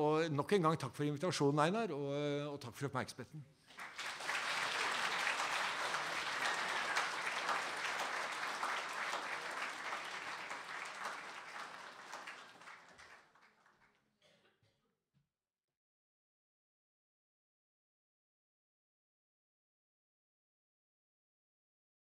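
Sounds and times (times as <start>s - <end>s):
audience applauding: 3.7s - 13.9s.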